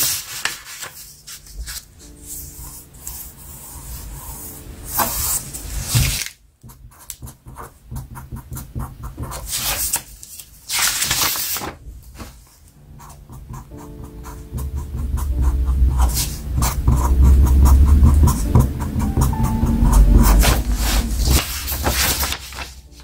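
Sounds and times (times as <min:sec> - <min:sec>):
paper rustling and sliding: 0:00.0 - 0:06.4, 0:09.4 - 0:12.7, 0:20.2 - 0:23.0
pen scratching on paper: 0:01.7 - 0:09.9, 0:12.9 - 0:22.5.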